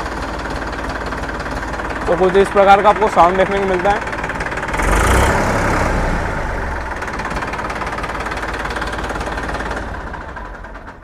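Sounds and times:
tractor diesel engine clatter: 0:00.0 - 0:11.0.

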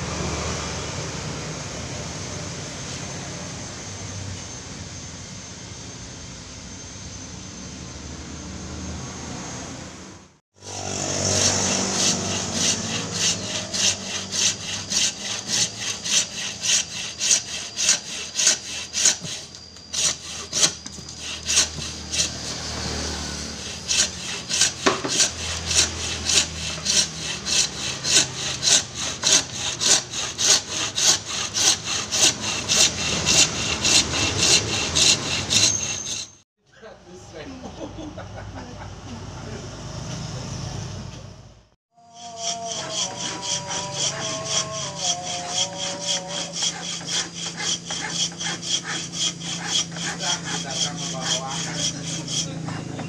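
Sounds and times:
saw cutting wood: 0:10.6 - 0:36.4, 0:42.0 - 0:53.0.

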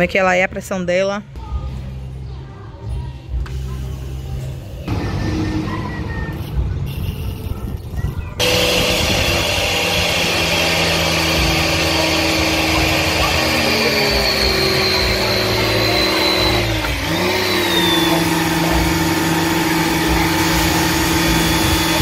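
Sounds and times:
pressure washer motor humming: 0:08.4 - 0:22.0.

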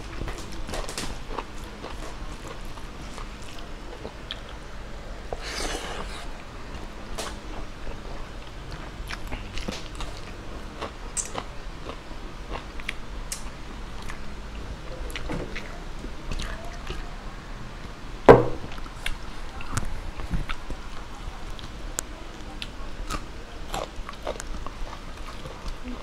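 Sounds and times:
chewing and biting food: 0:00.0 - 0:04.7, 0:05.3 - 0:17.0, 0:18.7 - 0:26.0
sharp thump: 0:18.3 - 0:18.7.

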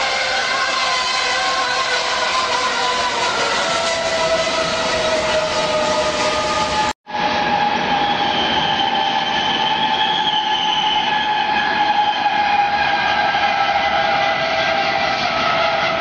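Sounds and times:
train horn chord: 0:00.0 - 0:07.9, 0:12.3 - 0:16.0.

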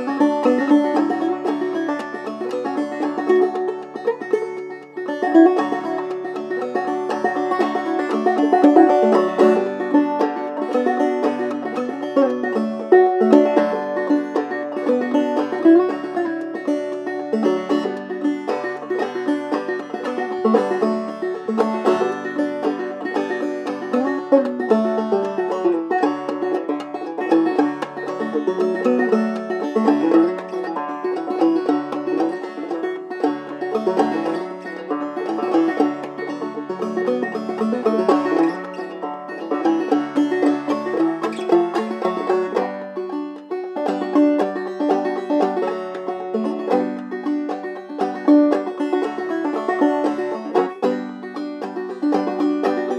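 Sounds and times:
banjo playing: 0:00.0 - 0:52.9.

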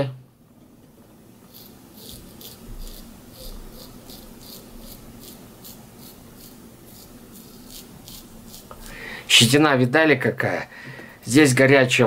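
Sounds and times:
razor scraping stubble: 0:01.5 - 0:09.6.

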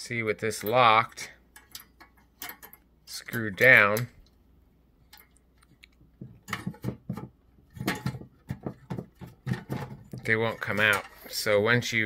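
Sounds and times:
faint metal clicks: 0:05.0 - 0:06.1
metal cage knocks and taps: 0:06.2 - 0:10.3.

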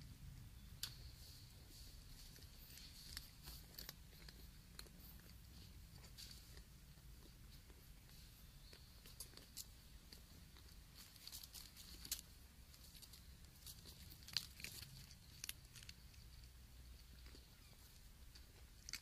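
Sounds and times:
faint clicks and rustles: 0:00.4 - 0:19.0.

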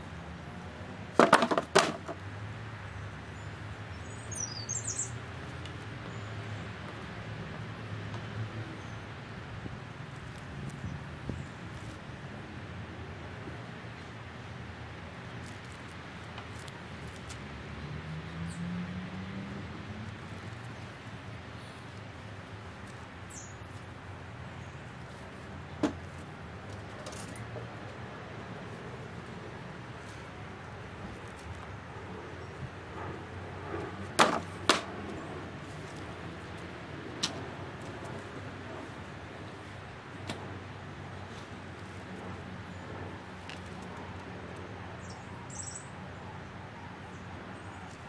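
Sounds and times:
birdsong: 0:02.8 - 0:07.1, 0:22.8 - 0:27.4, 0:44.9 - 0:48.0
bird chirps: 0:04.0 - 0:05.2, 0:45.0 - 0:45.9.

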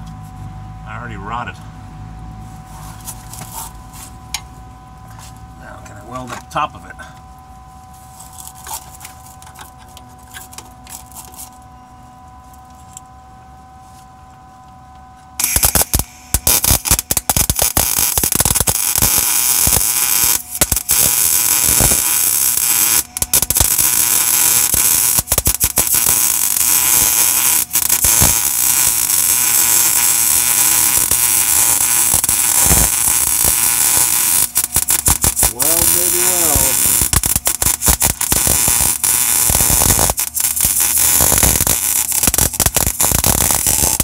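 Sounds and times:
welder arc crackling: 0:08.0 - 0:11.7, 0:14.3 - 0:44.0.

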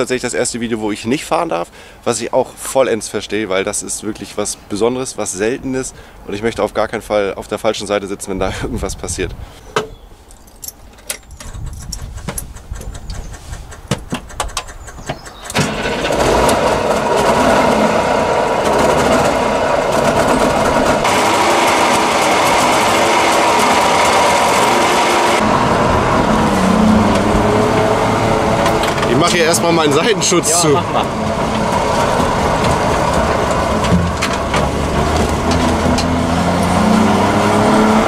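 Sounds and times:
two-stroke engine running: 0:15.5 - 0:38.0.

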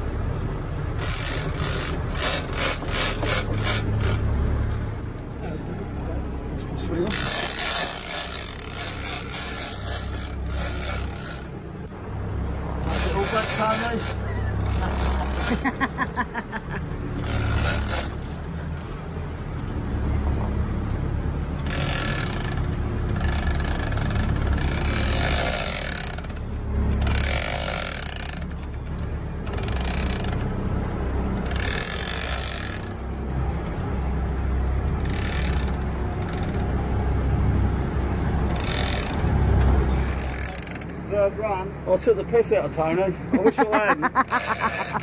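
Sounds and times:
boat engine drone: 0:00.0 - 0:45.0
fishing reel being cranked: 0:01.0 - 0:04.2, 0:07.1 - 0:11.6, 0:12.8 - 0:16.0, 0:17.2 - 0:18.5, 0:21.6 - 0:30.5, 0:31.4 - 0:33.0, 0:34.9 - 0:36.8, 0:38.5 - 0:39.3, 0:39.9 - 0:41.0, 0:44.2 - 0:45.0.

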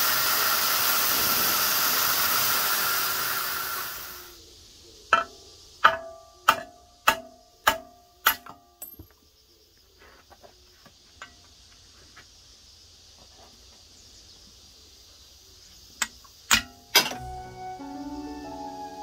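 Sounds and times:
hammer striking steel: 0:05.1 - 0:09.0.

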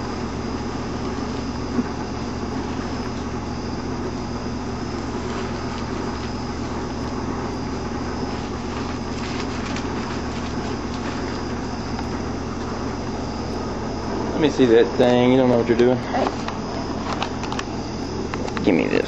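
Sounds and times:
steady low hum: 0:00.0 - 0:19.0
tape being peeled off: 0:04.9 - 0:12.8.

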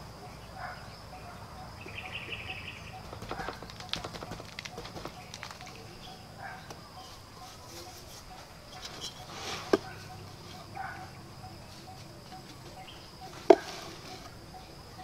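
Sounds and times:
faint repeating chirping: 0:00.0 - 0:15.0
high-pitched insect drone: 0:00.0 - 0:15.0
clay bricks knocking: 0:03.0 - 0:05.9, 0:12.4 - 0:14.3.

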